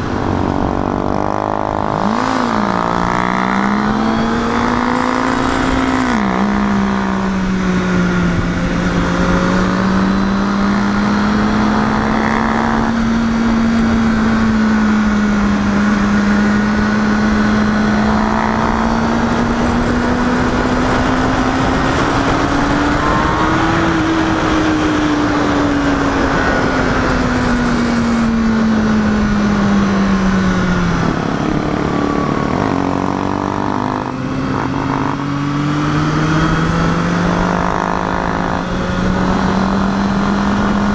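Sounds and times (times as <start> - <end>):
motorcycle engine running: 0.0 - 40.9
wind rushing: 16.5 - 40.9.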